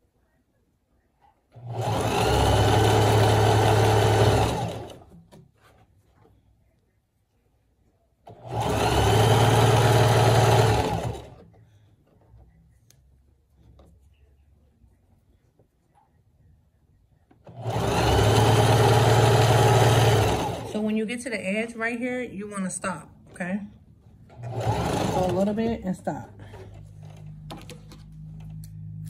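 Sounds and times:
sewing machine stitching: 0:01.5 - 0:05.4, 0:08.2 - 0:11.5, 0:17.4 - 0:20.8, 0:24.3 - 0:28.5.

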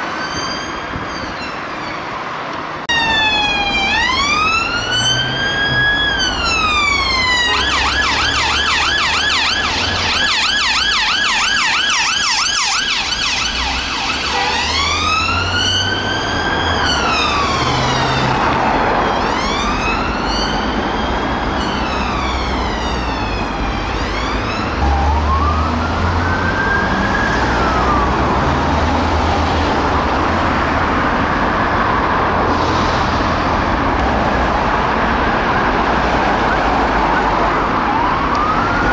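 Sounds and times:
road traffic: 0:00.0 - 0:38.9
second siren wailing: 0:02.9 - 0:30.1, 0:35.4 - 0:38.9
police siren wailing and yelping: 0:02.9 - 0:30.2, 0:35.3 - 0:38.9.

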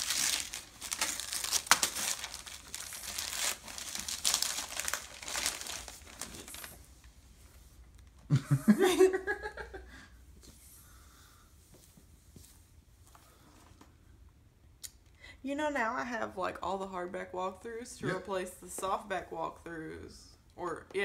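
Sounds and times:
wrapping paper tearing and crumpling: 0:00.0 - 0:06.8
person laughing: 0:08.3 - 0:10.0.

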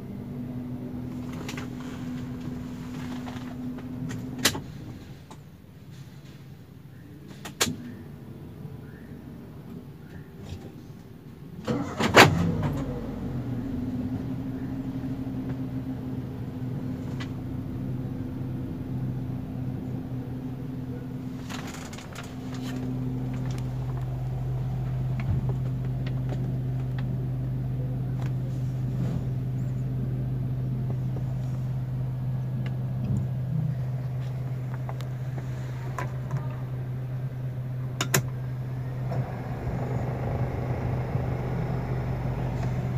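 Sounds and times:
car engine starting and idling: 0:00.0 - 0:05.4, 0:11.6 - 0:42.9.

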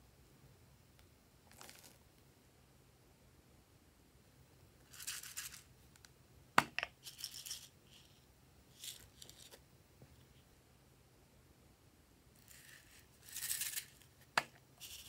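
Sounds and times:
plastic confetti rattling: 0:12.4 - 0:14.1, 0:14.8 - 0:15.0.

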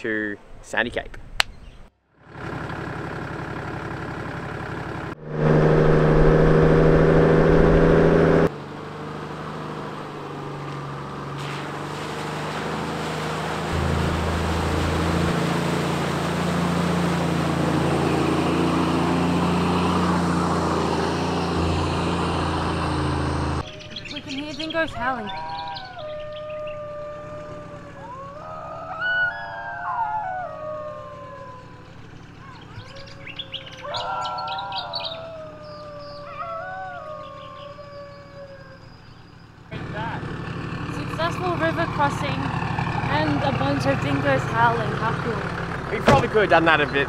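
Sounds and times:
car engine running: 0:02.2 - 0:25.3, 0:26.0 - 0:36.3, 0:38.8 - 0:47.0
water splashing off wheels: 0:09.4 - 0:23.6, 0:39.8 - 0:47.0.

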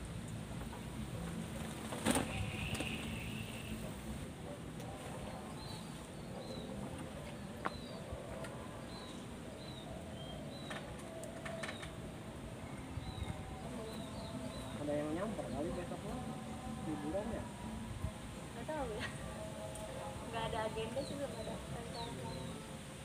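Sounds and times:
small birds chirping: 0:05.3 - 0:12.1, 0:12.7 - 0:16.2.

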